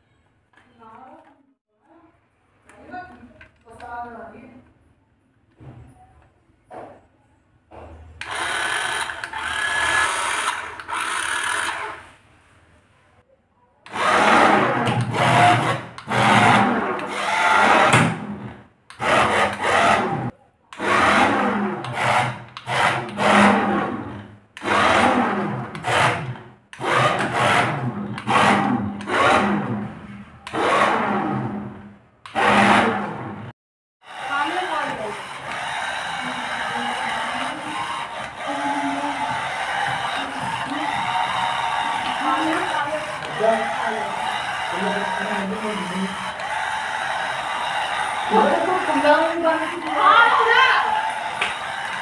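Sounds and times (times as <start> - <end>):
toy car motor and gears whirring: 8.2 - 12.0.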